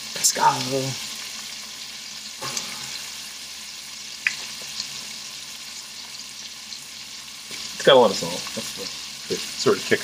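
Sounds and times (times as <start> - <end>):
food sizzling in oil: 0.0 - 10.0.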